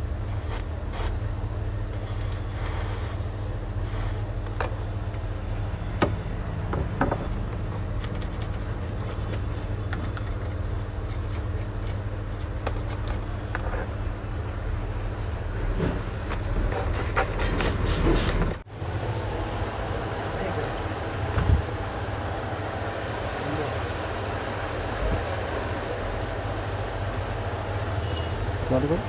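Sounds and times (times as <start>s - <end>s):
steady low hum: 0.0s - 29.0s
hand tools clicking and scraping: 16.4s - 18.6s.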